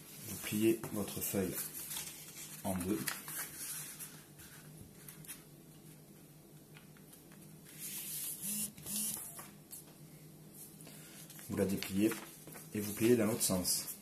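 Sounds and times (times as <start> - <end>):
paper rustling on tabletop: 0.2 - 5.5, 7.6 - 8.4, 10.6 - 14.0.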